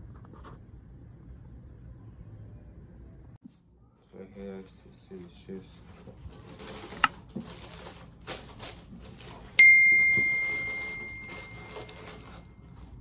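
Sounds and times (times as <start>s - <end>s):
tissue paper rustling: 5.8s - 13.0s
bright bell ding: 9.6s - 12.2s.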